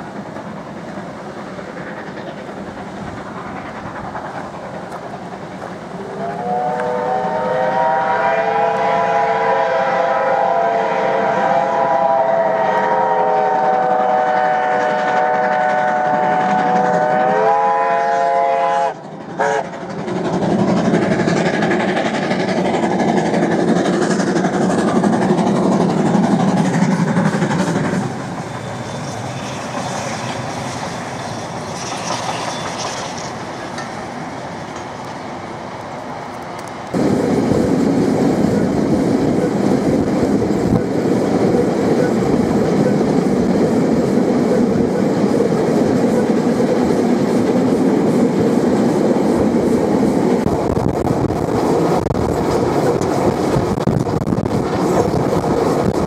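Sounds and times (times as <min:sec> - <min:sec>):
train running rumble: 0:00.0 - 0:56.0
steam locomotive whistle: 0:06.0 - 0:19.7.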